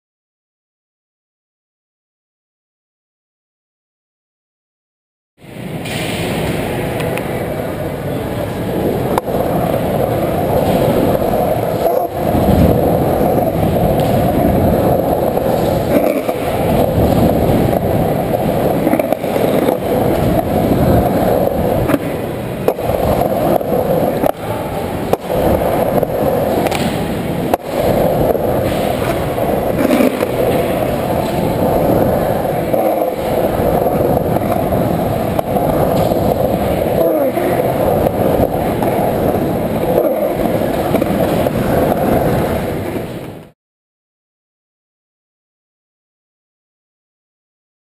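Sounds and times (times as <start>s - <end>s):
skateboard wheels rolling on concrete: 5.4s - 43.6s.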